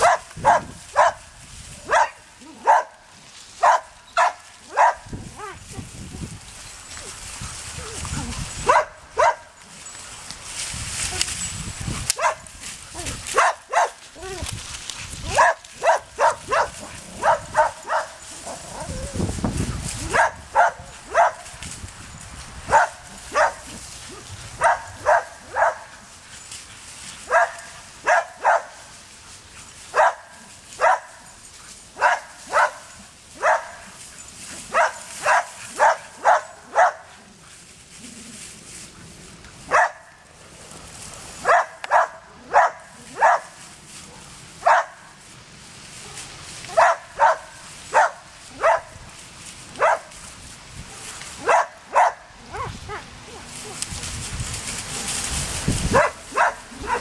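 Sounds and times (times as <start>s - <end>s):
dog barking: 0.0s - 1.2s, 1.9s - 3.0s, 3.6s - 5.6s, 8.6s - 9.5s, 12.2s - 12.4s, 13.3s - 14.0s, 15.3s - 18.2s, 20.1s - 21.4s, 22.7s - 23.7s, 24.6s - 25.9s, 27.3s - 28.8s, 29.9s - 31.2s, 32.0s - 33.8s, 34.7s - 37.1s, 39.7s - 40.1s, 41.4s - 43.5s, 44.6s - 45.1s, 46.0s - 48.9s, 49.8s - 50.1s, 50.9s - 53.8s, 55.9s - 57.0s.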